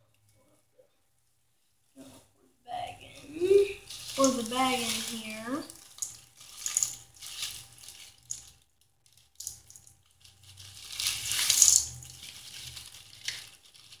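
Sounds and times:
plastic bag crinkling: 3.0 - 14.0
hard candy pattering into steel bowl: 3.2 - 14.0.

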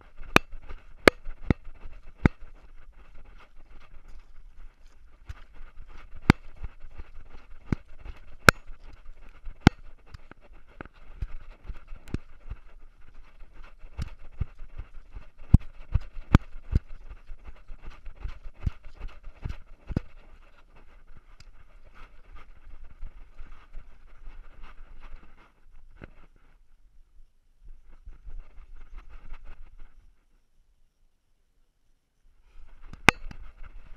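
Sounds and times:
faint steady hiss: 20.3 - 33.9.

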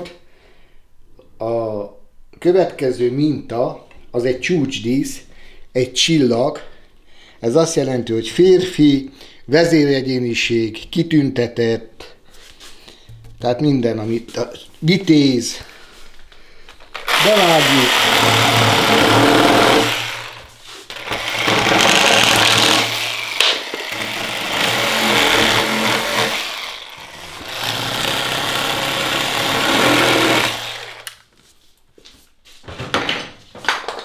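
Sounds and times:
reciprocating saw cutting wood: 17.0 - 31.1.

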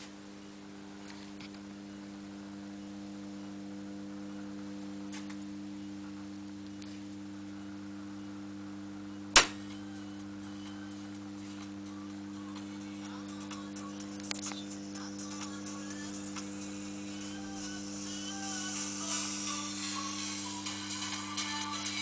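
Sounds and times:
transformer mains hum: 0.0 - 22.0
sharp click: 9.4 - 9.7.

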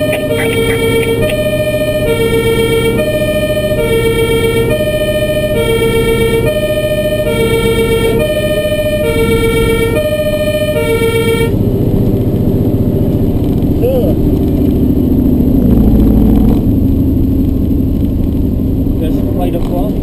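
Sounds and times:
two-tone siren: 0.0 - 11.8
truck engine and road rumble: 0.0 - 20.0.

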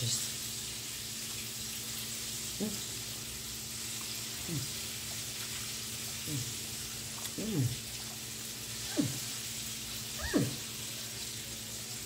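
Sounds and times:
fish sizzling in hot oil: 0.0 - 7.2, 7.8 - 12.0.

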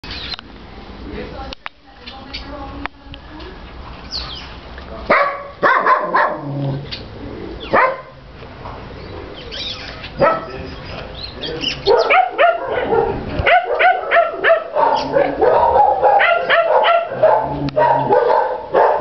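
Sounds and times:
dog barking: 5.1 - 6.5, 7.7 - 8.2, 10.2 - 10.6, 11.8 - 19.0.

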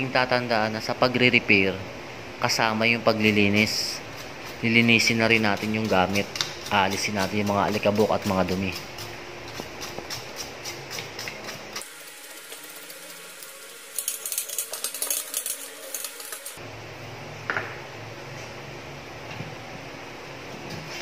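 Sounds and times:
brush scrubbing circuit board: 3.2 - 9.1.

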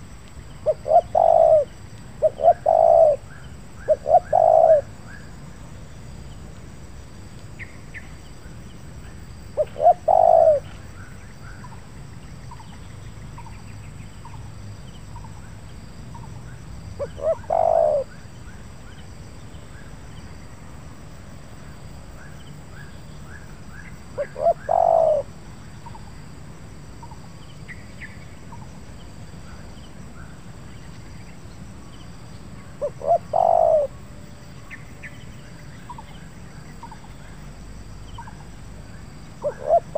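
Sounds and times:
small birds chirping: 0.4 - 5.3, 7.6 - 19.9
dove cooing: 0.6 - 4.9, 9.6 - 10.7, 17.0 - 18.2, 24.2 - 25.3, 32.8 - 34.0, 39.4 - 39.9.

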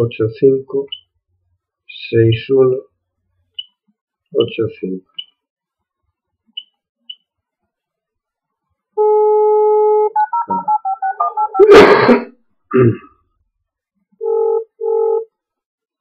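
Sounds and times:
touch-tone keypad beeps: 10.2 - 11.7.

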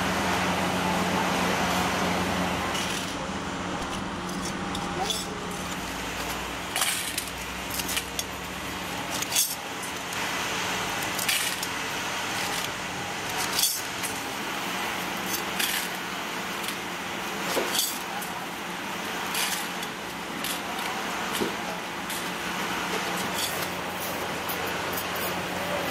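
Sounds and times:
steady background hum: 0.0 - 25.9
small metal parts clinking: 3.8 - 10.2, 11.0 - 14.3, 15.0 - 16.8, 17.4 - 18.6, 19.2 - 25.5.

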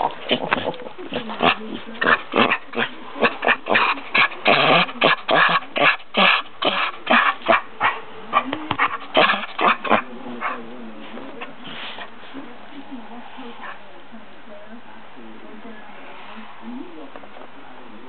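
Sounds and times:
dogs growling and barking: 0.0 - 12.2.

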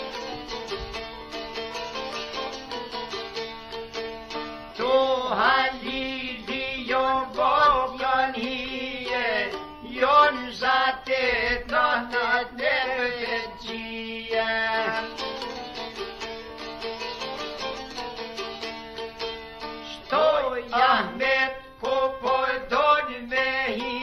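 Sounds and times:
plucked strings: 0.0 - 24.0
man singing folk song: 4.7 - 15.8, 19.8 - 24.0.

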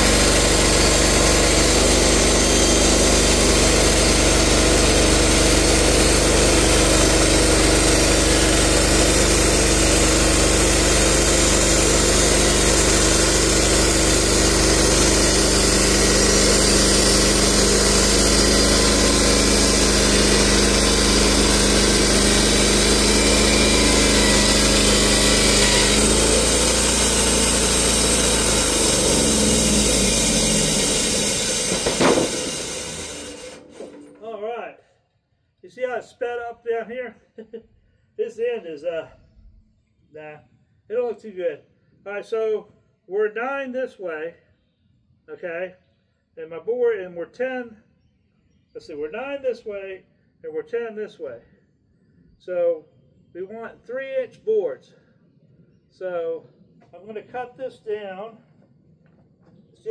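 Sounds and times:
band saw cutting log: 0.0 - 34.4
band sawmill engine under load: 0.0 - 34.4.

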